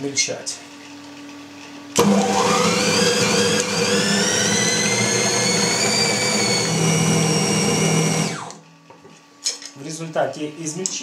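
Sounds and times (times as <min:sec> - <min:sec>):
bowl cutter motor whine: 0:01.9 - 0:08.7
blades churning meat: 0:02.0 - 0:08.6.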